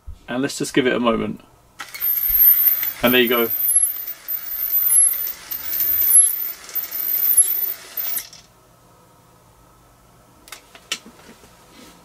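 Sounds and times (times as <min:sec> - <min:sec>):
blind motor running: 0:01.8 - 0:08.4.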